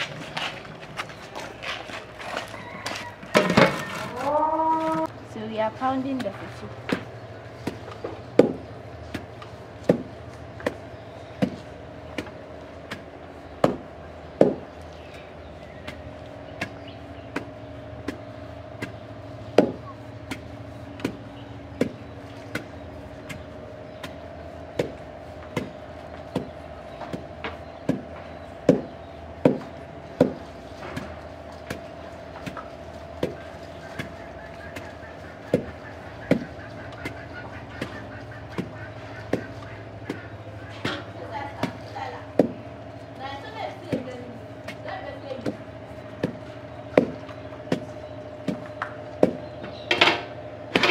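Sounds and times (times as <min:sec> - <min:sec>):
pestle pounding in a mortar: 0:06.2 - 0:10.8, 0:19.6 - 0:30.4, 0:33.2 - 0:42.7, 0:45.4 - 0:50.1.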